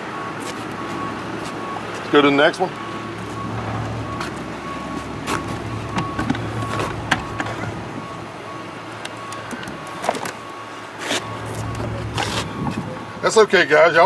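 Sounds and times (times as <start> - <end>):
faint high beep: 2.5 - 13.3
low warehouse hum: 2.7 - 13.4.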